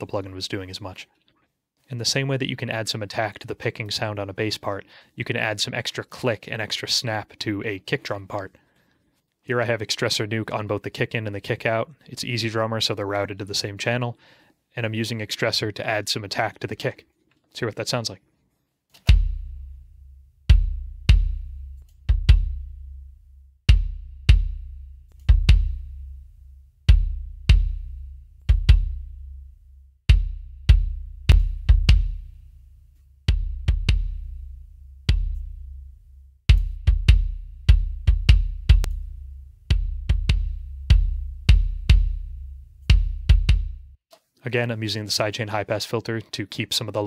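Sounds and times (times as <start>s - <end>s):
kick drum beat: 19.1s - 19.8s, 20.5s - 23.0s, 23.7s - 26.1s, 26.9s - 29.4s, 30.1s - 32.3s, 33.3s - 35.8s, 36.5s - 44.0s.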